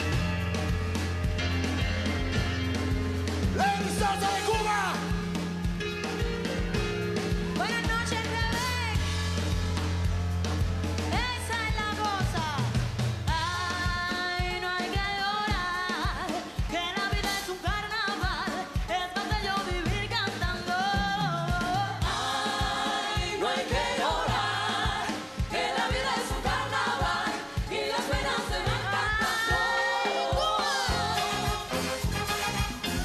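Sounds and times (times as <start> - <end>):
live band dance music: 0.0 - 33.0
woman singing: 13.3 - 25.3, 26.0 - 31.6
backing voices singing: 21.2 - 32.2.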